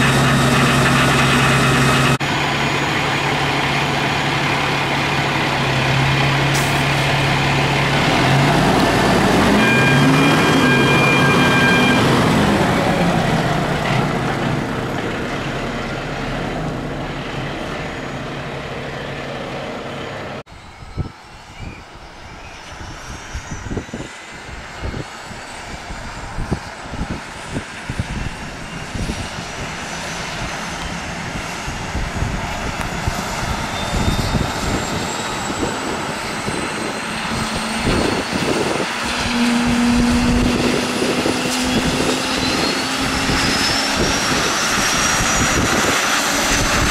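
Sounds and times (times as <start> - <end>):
helicopter turbine whine: 0.0 - 16.4, 17.0 - 46.9
diesel engine pulling away: 0.0 - 46.9
helicopter rotor thumps: 35.9 - 46.9.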